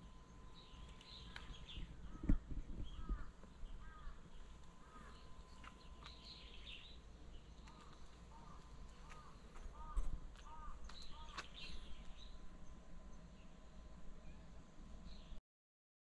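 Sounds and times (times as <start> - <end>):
birds twittering: 0.0 - 15.4
small birds chirping: 0.0 - 15.4.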